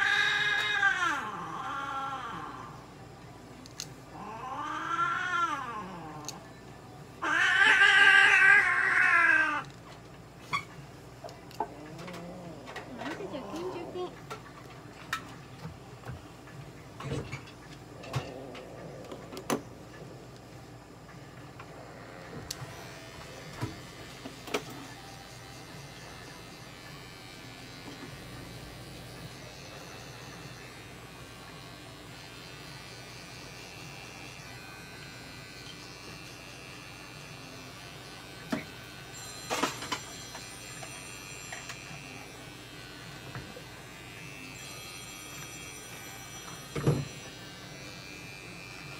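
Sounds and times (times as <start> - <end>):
electric trimmer buzzing: 21.6 - 48.9.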